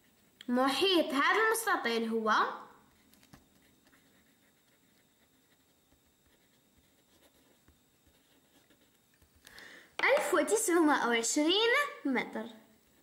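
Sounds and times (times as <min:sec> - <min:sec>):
marker writing on paper: 0:02.9 - 0:09.4.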